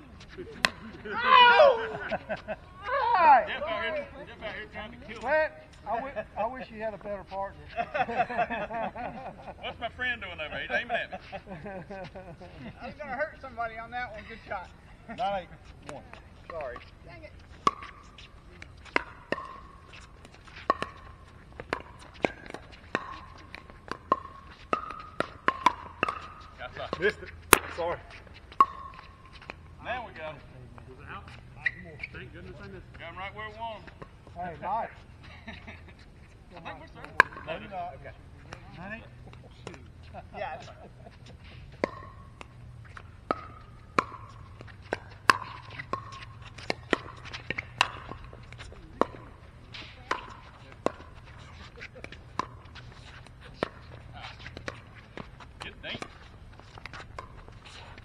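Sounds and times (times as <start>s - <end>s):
faint ball taps: 17.6s - 29.6s, 41.2s - 57.7s
paddles hitting plastic ball: 41.8s - 49.3s.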